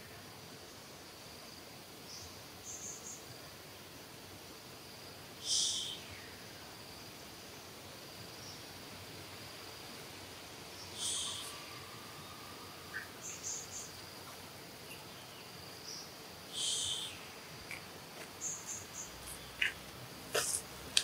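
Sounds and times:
insects buzzing: 0.0s - 21.0s
faint chirps: 5.4s - 6.6s, 10.7s - 21.0s
shrill high calls: 11.0s - 13.9s, 16.5s - 17.3s.

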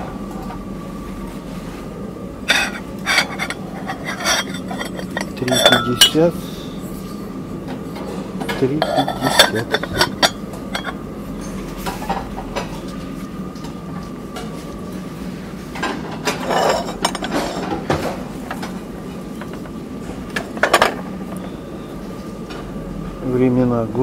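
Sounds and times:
steady background hum: 0.0s - 24.0s
crockery clinking: 2.5s - 6.3s, 8.4s - 11.6s.

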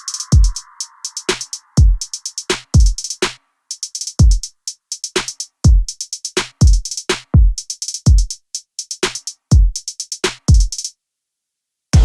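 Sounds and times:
crisp hi-hat ticks: 0.0s - 11.0s.

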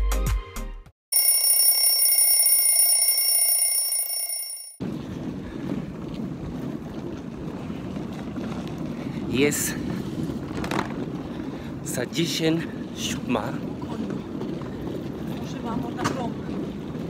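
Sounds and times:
high bell-like ringing tone: 1.1s - 4.8s
street background: 1.2s - 17.0s
wind noise on microphone: 4.8s - 17.0s.

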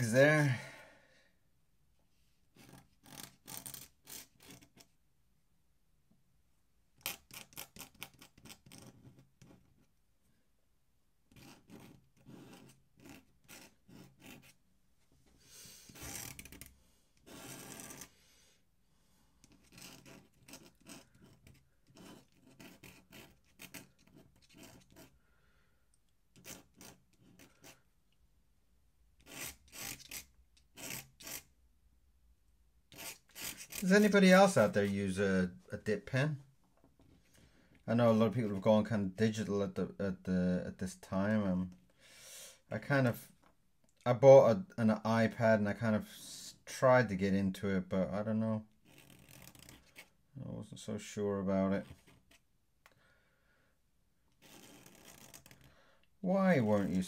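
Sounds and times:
pen nib scratching paper: 2.5s - 4.9s, 7.0s - 9.9s, 11.3s - 14.6s, 15.9s - 18.1s, 19.4s - 25.2s, 26.4s - 27.9s, 29.2s - 31.5s, 32.9s - 34.1s, 48.8s - 50.1s, 54.4s - 55.7s.

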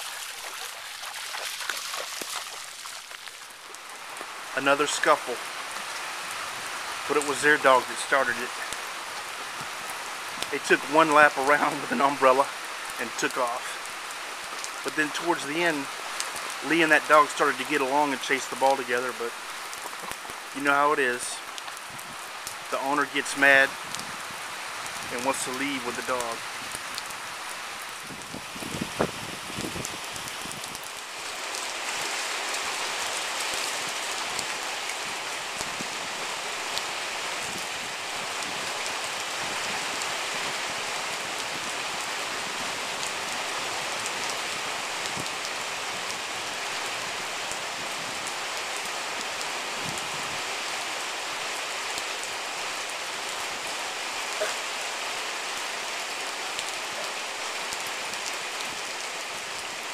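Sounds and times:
raindrops ticking: 0.0s - 6.0s, 6.9s - 24.1s
steady rain falling: 0.0s - 59.9s.

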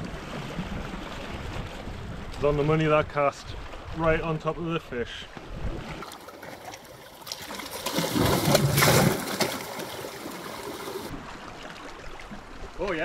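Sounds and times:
sea water splashing in rock gully: 5.7s - 13.0s
water trickling: 6.0s - 13.0s.

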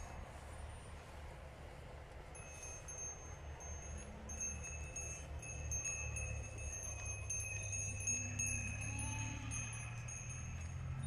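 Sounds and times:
goat bells clinking: 2.3s - 11.0s.

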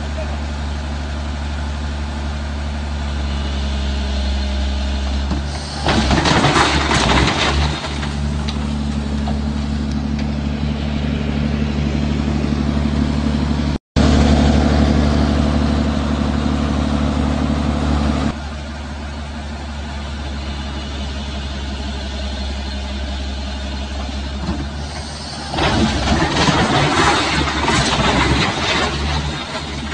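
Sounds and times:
heavy diesel engine running: 0.0s - 29.9s.

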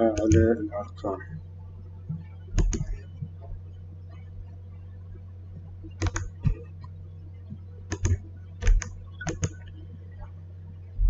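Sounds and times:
low electrical hum: 0.0s - 11.0s
computer mouse clicks: 0.1s - 0.5s, 2.6s - 3.1s, 5.9s - 6.9s, 7.9s - 9.8s.

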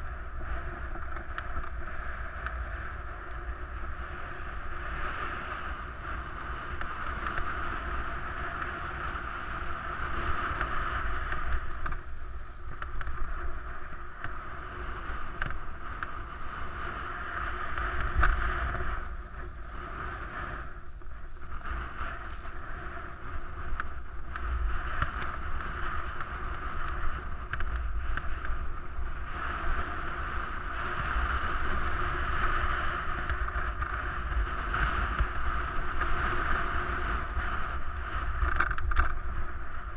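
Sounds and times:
skis scraping over snow: 0.0s - 39.9s
wind rumble on microphone: 0.0s - 39.9s.

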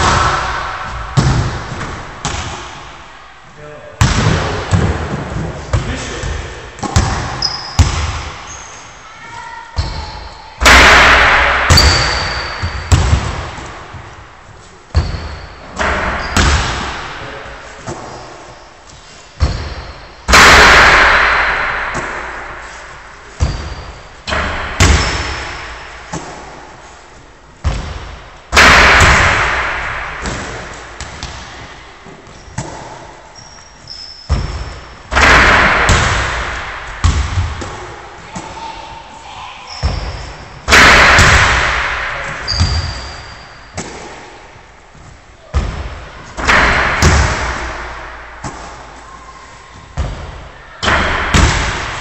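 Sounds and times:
basketball banging on hoop: 23.4s - 26.4s, 45.5s - 48.8s.

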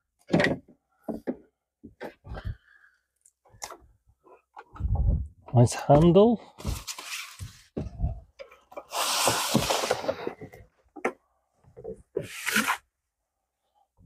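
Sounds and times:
cardboard and plastic rustling: 6.6s - 7.9s, 8.8s - 10.6s.

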